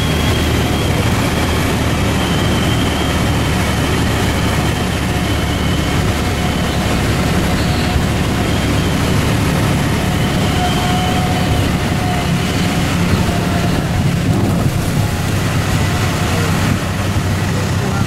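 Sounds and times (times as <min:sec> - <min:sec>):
aircraft engine and propeller drone: 0:00.0 - 0:18.0.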